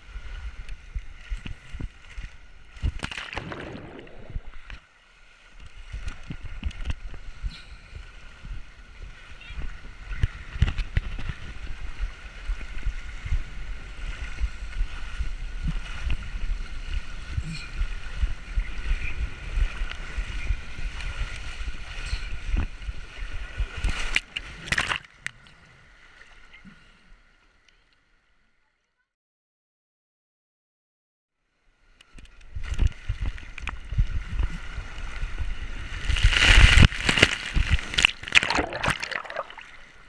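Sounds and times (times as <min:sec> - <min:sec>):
water rushing down a waterslide: 0:02.8 - 0:04.8, 0:32.5 - 0:40.0.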